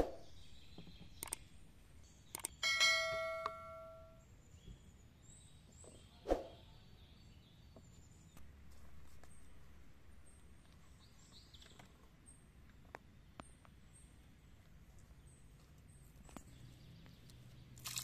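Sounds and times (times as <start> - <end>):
ringing clink of tableware: 2.6 - 4.2.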